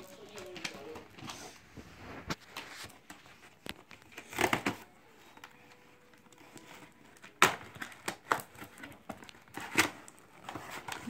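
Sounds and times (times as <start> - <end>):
toy packaging handled: 0.0 - 1.7, 2.3 - 11.0
crackling rustle of packaging: 0.0 - 11.0.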